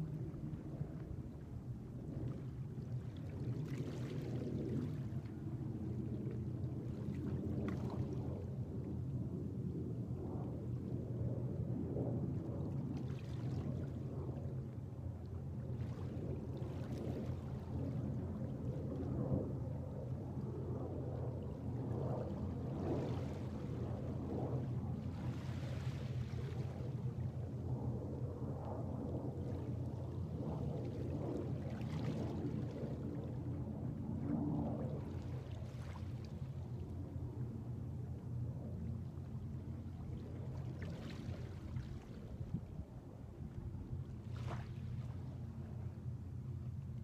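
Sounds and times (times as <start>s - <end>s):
small waves splashing: 0.0s - 8.3s, 24.9s - 27.2s, 30.8s - 33.6s, 34.9s - 37.2s, 39.6s - 46.0s
steady low rumble: 0.0s - 12.9s, 17.4s - 47.0s.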